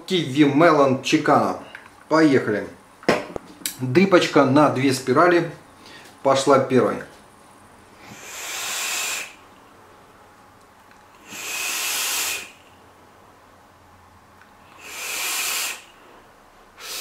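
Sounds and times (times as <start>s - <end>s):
vape puffs hissing: 8.0s - 9.4s, 11.2s - 12.6s, 14.7s - 16.0s, 16.8s - 17.0s.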